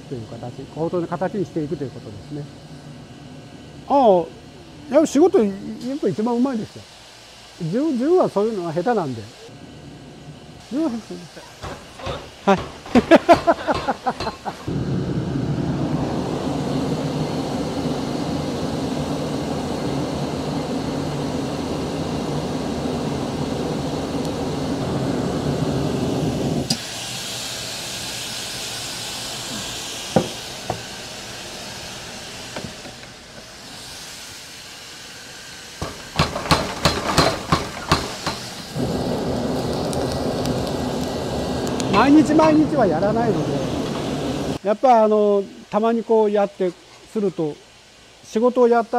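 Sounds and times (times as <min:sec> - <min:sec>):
machinery rumble and hum: 0:00.0 - 0:33.6, 0:35.8 - 0:44.6
forge fire roaring under air blast: 0:00.0 - 0:44.6
hammer blows on hot steel: 0:10.8 - 0:15.2, 0:35.8 - 0:44.6.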